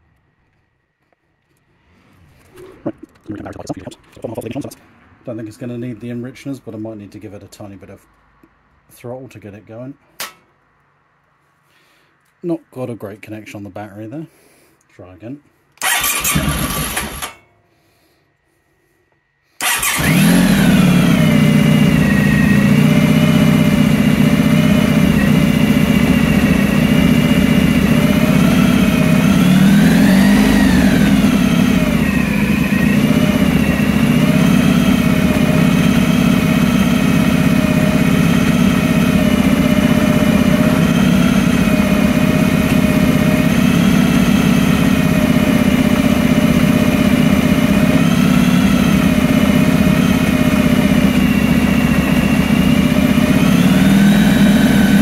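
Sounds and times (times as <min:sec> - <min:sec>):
motorcycle engine running: 0:19.6 - 0:55.0.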